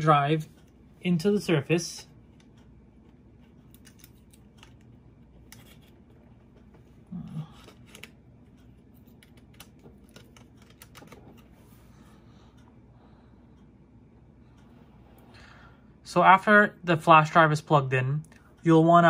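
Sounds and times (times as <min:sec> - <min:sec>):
light clicks and scrapes: 0:02.3 - 0:12.7.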